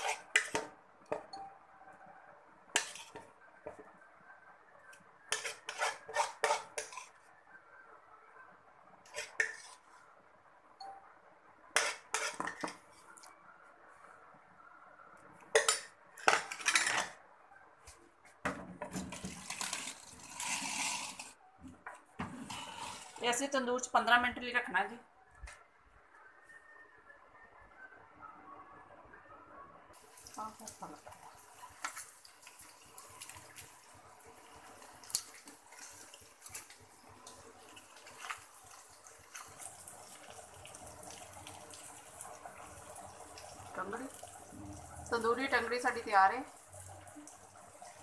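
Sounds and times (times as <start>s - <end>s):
chicken sizzling in oven: 18.9s - 21.4s, 29.9s - 48.0s.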